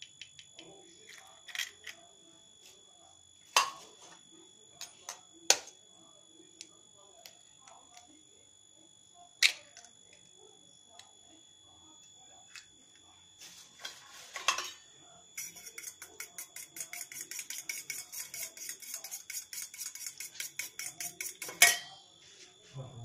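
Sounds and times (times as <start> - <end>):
fork clinking against steel bowl: 15.4 - 22.0.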